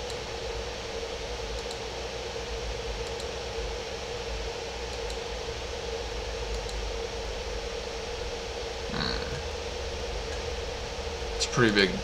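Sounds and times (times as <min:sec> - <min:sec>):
constant hum: 0:00.0 - 0:12.0
faint clicks: 0:01.5 - 0:01.8, 0:03.0 - 0:03.3, 0:04.9 - 0:05.2, 0:06.5 - 0:06.8
even hiss: 0:08.8 - 0:09.5.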